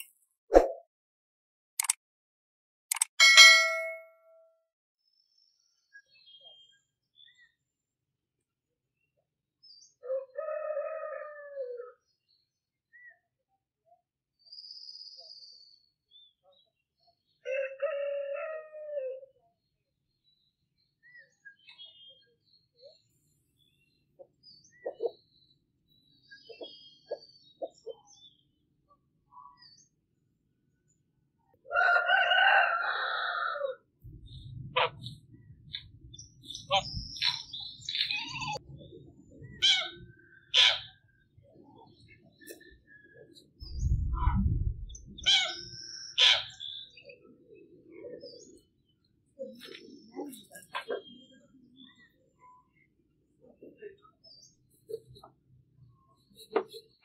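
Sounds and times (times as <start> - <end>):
thin high bird call: 2.9 - 4.4
small birds chirping: 5.0 - 7.7, 20.2 - 31.1, 34.0 - 57.0
rooster crowing: 31.7 - 33.8.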